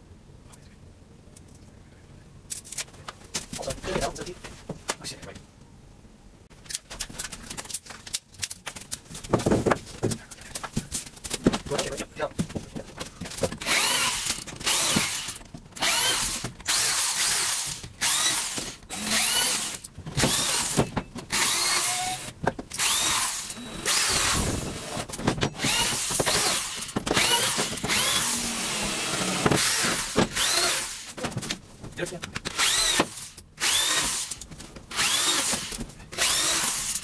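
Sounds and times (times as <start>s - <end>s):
electric drill whining: 13.6s - 31.1s, 32.5s - 37.0s.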